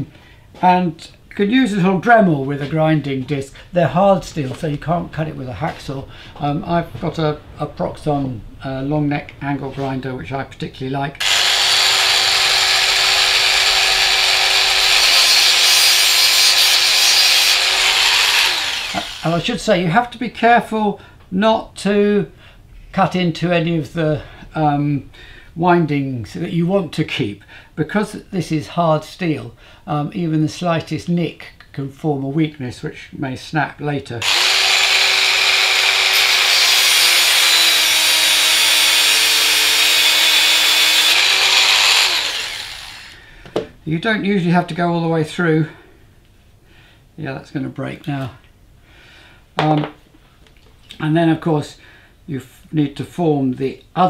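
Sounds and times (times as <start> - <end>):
angle grinder cutting steel: 11.2 - 19.6, 34.2 - 43.2.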